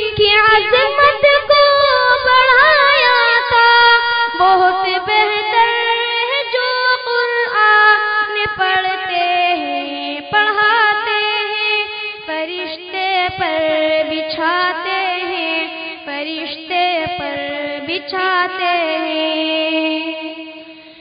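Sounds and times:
person singing unaccompanied: 0.0s - 21.0s.

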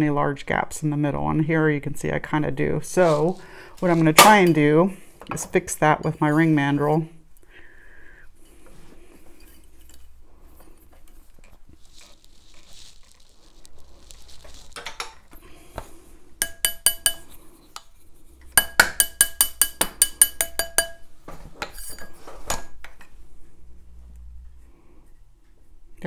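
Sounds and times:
metallic taps on steel mandrel: 16.4s - 17.2s, 18.6s - 21.0s.

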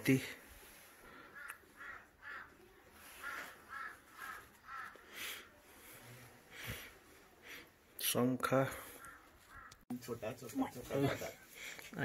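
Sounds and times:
crow cawing: 1.1s - 5.5s, 8.9s - 9.8s.

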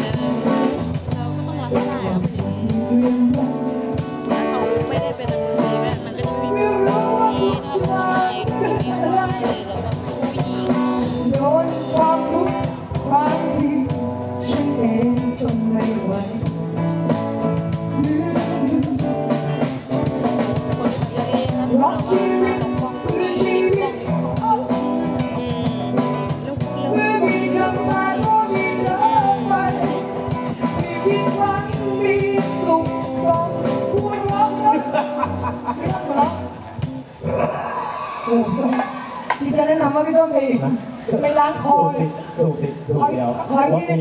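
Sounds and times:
person singing into microphone: 0.0s - 36.8s
live band with drums and guitar: 0.0s - 44.0s.

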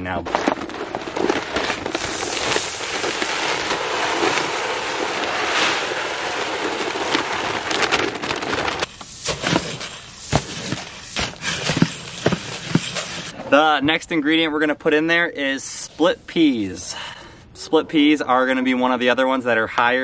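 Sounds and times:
seeds pouring: 0.0s - 13.3s
tool stirring seed: 9.2s - 13.3s.

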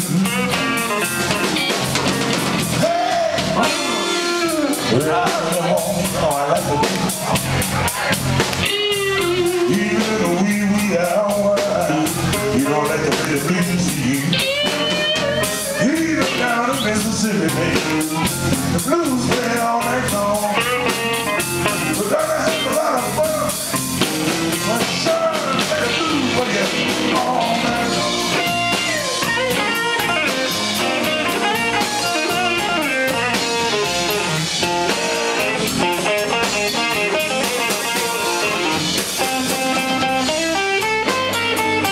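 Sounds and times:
blues band playing: 0.0s - 41.9s
amplified harmonica: 27.2s - 41.9s.

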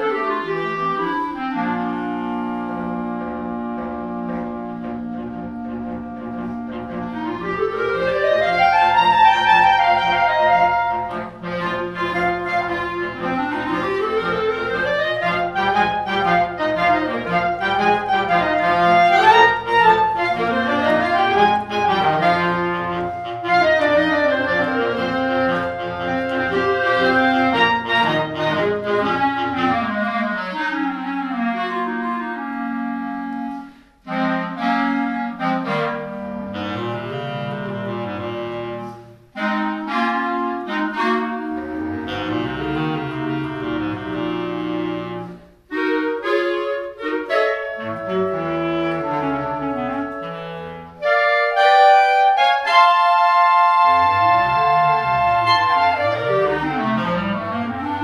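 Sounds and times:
clarinet ensemble playing: 0.0s - 58.0s.

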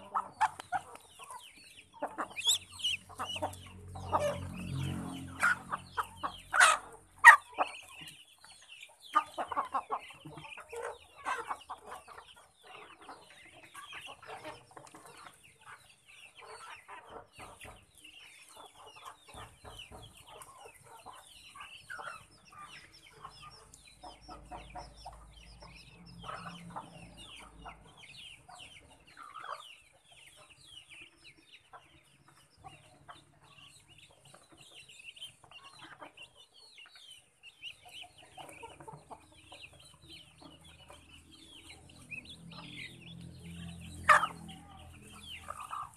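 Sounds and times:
chickens clucking: 0.0s - 45.9s.

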